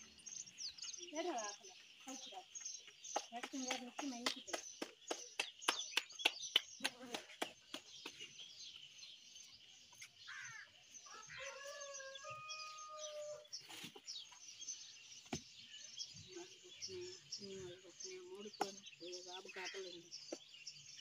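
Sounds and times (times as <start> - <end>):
small birds chirping: 0.0 - 21.0
rooster crowing: 11.1 - 13.4.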